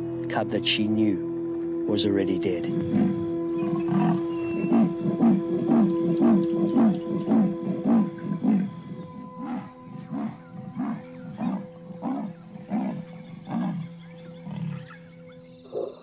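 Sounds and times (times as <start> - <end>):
leopard sawing call: 2.9 - 14.8.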